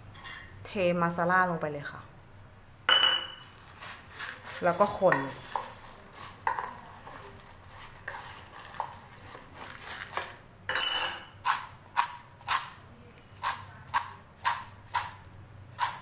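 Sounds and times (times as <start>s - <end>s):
spoon scraping steel bowl: 3.0s - 16.0s
dry lentils rattling in bowl: 3.5s - 10.3s.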